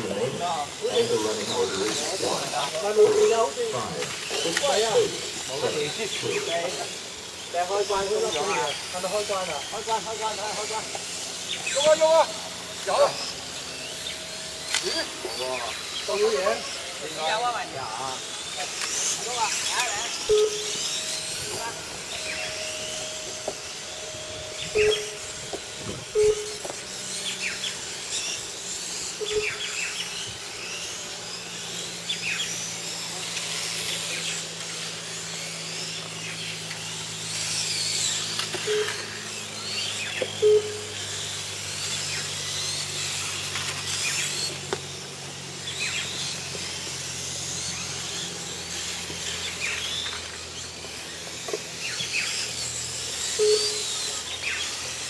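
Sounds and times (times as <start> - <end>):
electric motors whining: 0.0 - 55.0
short beeps: 20.3 - 20.7, 26.2 - 26.6, 40.4 - 40.9.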